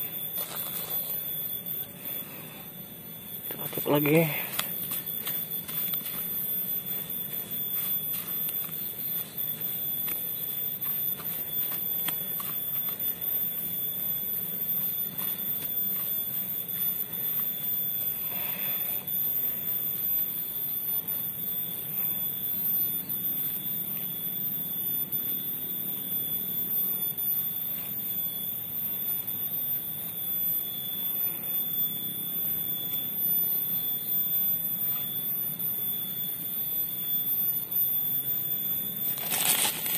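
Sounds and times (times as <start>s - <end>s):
high-pitched drone: 0.0s - 19.6s, 39.1s - 39.9s.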